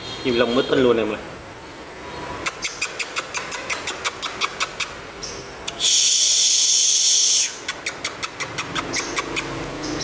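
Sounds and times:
buzzy bird trill: 0:02.4 - 0:10.0.

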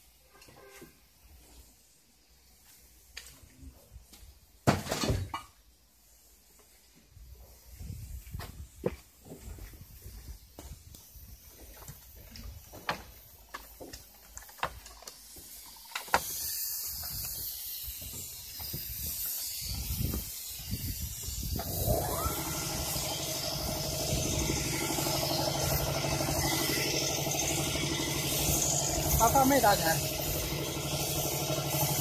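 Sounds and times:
high hiss of spraying: 0:09.8 - 0:32.0
motor whine: 0:19.7 - 0:32.0.

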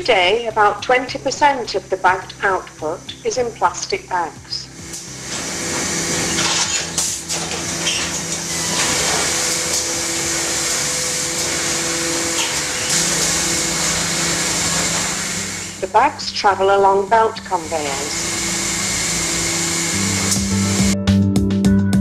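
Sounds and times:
low motor hum: 0:00.0 - 0:21.0
machine rushing hiss: 0:04.8 - 0:15.9, 0:17.4 - 0:21.0.

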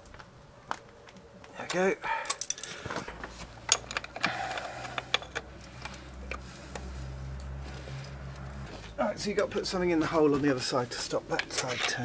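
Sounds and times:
metal tools clinking: 0:02.2 - 0:06.0, 0:07.9 - 0:09.7, 0:11.4 - 0:12.0.

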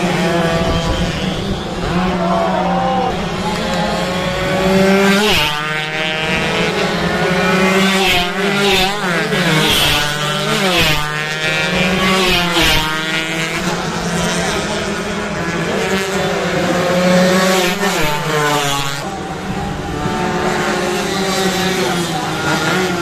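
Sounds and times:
motorcycles revving hard: 0:00.0 - 0:23.0.

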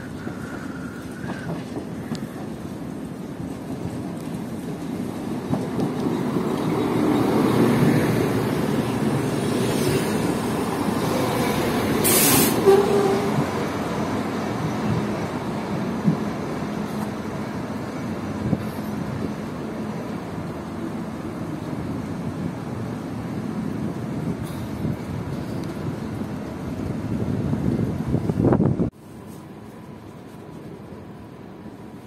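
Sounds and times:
train engine and wheels on rails: 0:00.0 - 0:32.0
brief sharp hiss: 0:12.0 - 0:12.7.

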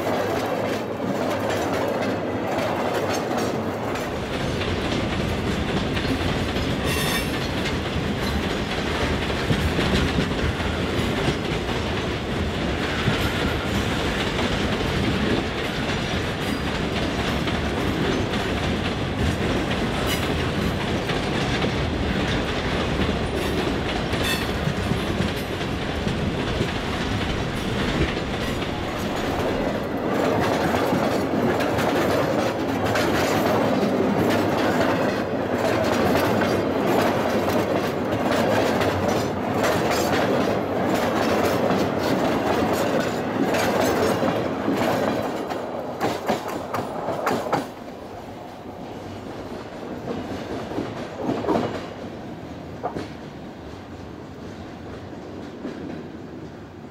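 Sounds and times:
train wheels clicking over rail joints: 0:00.0 - 0:56.2.

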